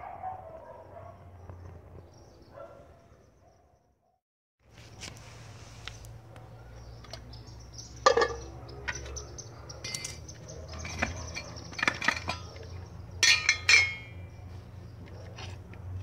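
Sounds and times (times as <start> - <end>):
metal clinking and scraping: 8.0 - 14.4.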